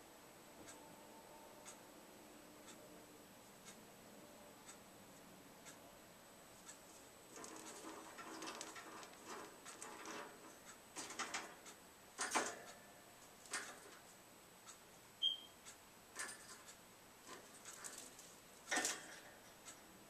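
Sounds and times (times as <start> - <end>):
bird rustling in wire cage: 6.9 - 11.6.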